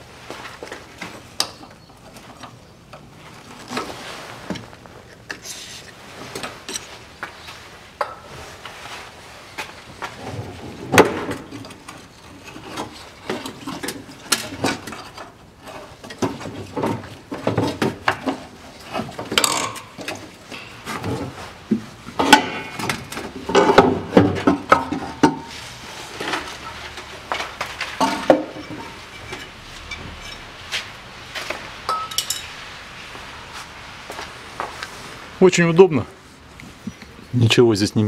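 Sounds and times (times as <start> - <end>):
metal clanks and knocks: 22.1 - 25.6, 26.2 - 32.6
metal scraping: 24.9 - 32.8.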